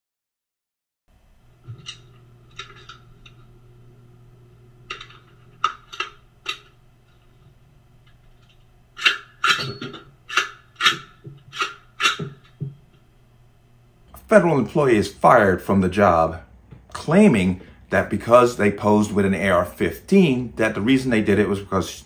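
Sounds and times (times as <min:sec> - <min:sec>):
steady low hum: 0:01.1 - 0:22.0
rifle parts clicking and clacking: 0:04.9 - 0:07.3, 0:08.0 - 0:13.0.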